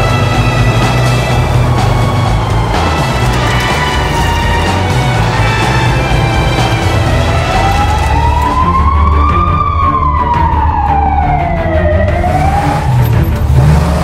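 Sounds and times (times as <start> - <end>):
music with bass line: 0.0 - 14.0
siren wailing: 0.2 - 13.2.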